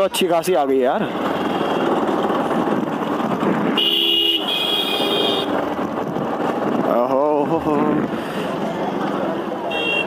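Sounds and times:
motorcycle riding: 0.0 - 10.0
vehicle horn honking: 3.8 - 5.6, 9.7 - 10.0.

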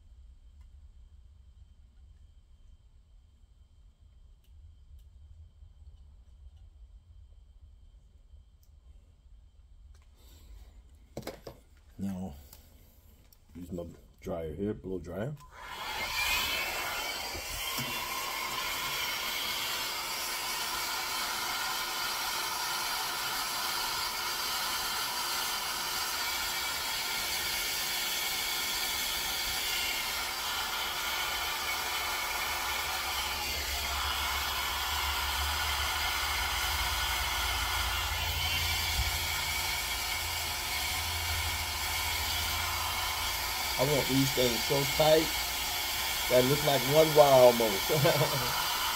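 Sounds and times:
hair dryer blowing: 15.4 - 48.9.

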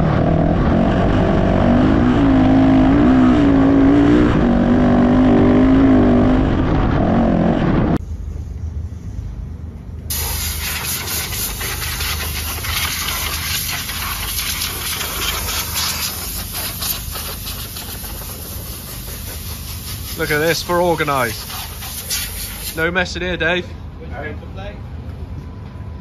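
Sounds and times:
steady hiss with crackling: 10.1 - 23.0
motorcycle engine running: 11.5 - 20.7.

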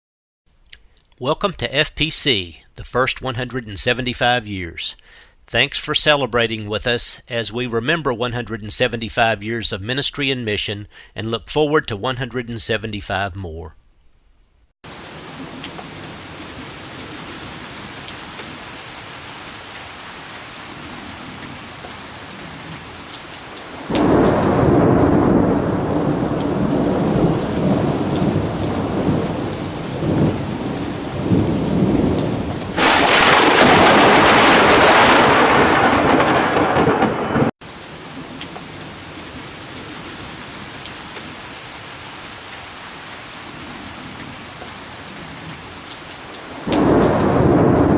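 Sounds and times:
steady rain: 14.8 - 47.9
thunder rumble: 23.7 - 37.5, 46.5 - 47.9
thunder crash: 23.9 - 29.3, 31.2 - 37.5, 46.7 - 47.9.

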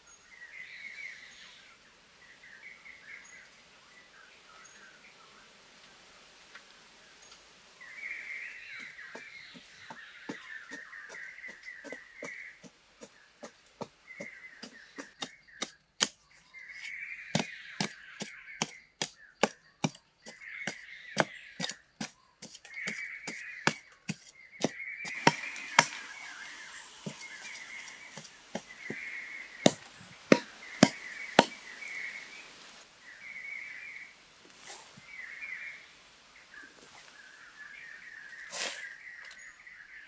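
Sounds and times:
machete chopping into soil: 25.1 - 29.0, 29.6 - 31.6.

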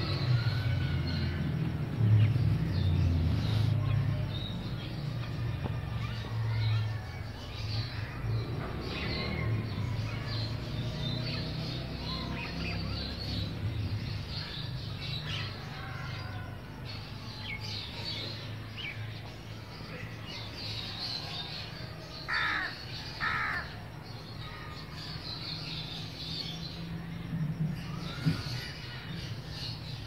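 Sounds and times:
small birds chirping: 0.0 - 30.0
crows cawing: 22.3 - 23.8.

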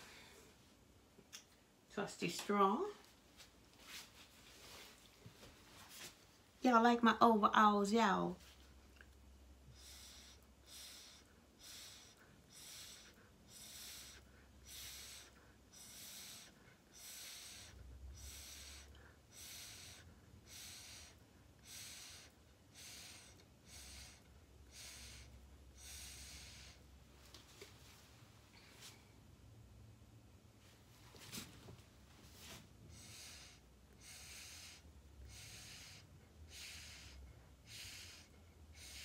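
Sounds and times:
breath puffs through a straw: 9.7 - 26.9, 32.4 - 39.0.

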